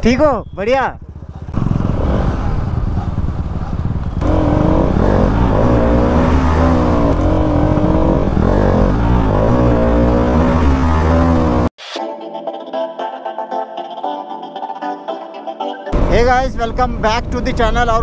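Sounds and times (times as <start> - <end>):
motorcycle engine running: 0.0 - 11.7
road and wind noise: 0.0 - 11.7, 16.0 - 18.0
background music: 11.8 - 16.0.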